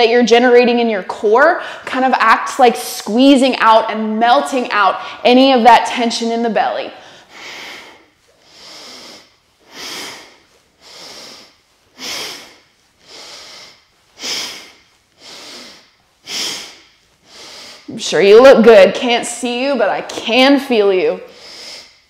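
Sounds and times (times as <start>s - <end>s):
woman breathing heavily: 1.6s - 1.9s, 4.9s - 5.3s, 6.9s - 18.0s, 21.2s - 22.0s.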